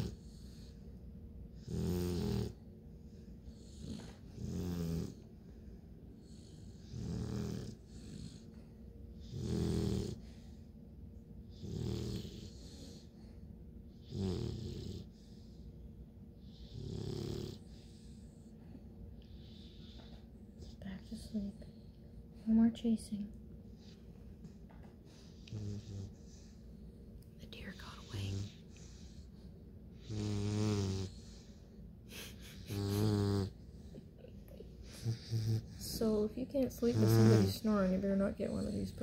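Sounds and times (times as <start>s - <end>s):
puppy snoring: 0.0s - 0.8s, 1.5s - 2.7s, 3.4s - 5.6s, 6.2s - 10.6s, 11.4s - 13.3s, 13.9s - 15.7s, 16.4s - 18.5s, 19.2s - 21.5s, 25.2s - 26.6s, 27.4s - 34.0s, 34.6s - 39.0s.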